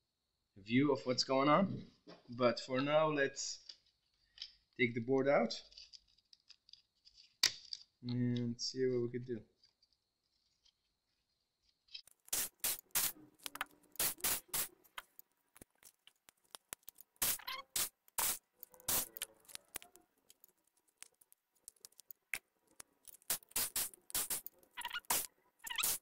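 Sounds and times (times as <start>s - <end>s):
screwdriver working screws: 22.7s - 26.0s.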